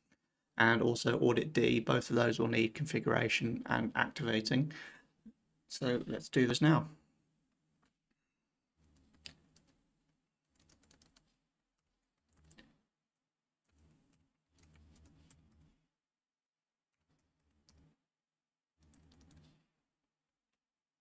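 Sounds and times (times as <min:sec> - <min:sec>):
faint typing on a keyboard: 0:08.8 - 0:09.8, 0:10.4 - 0:12.8, 0:13.6 - 0:15.8, 0:16.9 - 0:18.0, 0:18.8 - 0:19.6.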